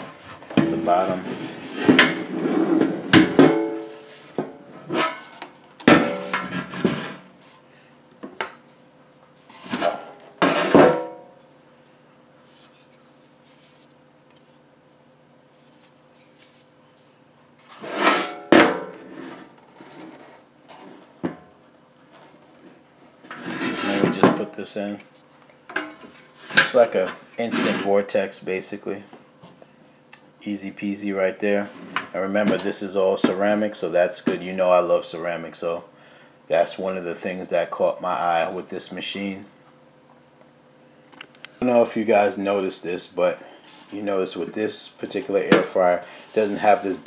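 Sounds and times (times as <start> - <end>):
air fryer basket knocking and clattering: 0.5 - 1.2, 5.8 - 7.1.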